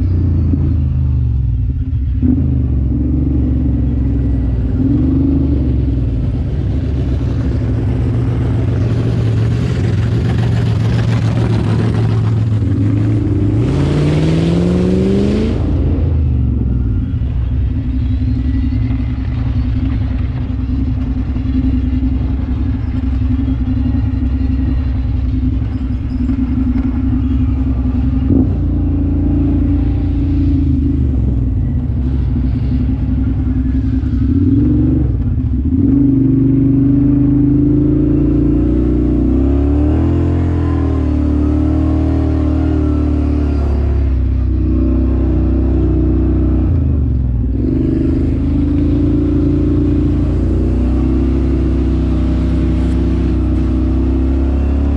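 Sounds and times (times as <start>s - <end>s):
off-road vehicle engine revving: 0.0s - 54.9s.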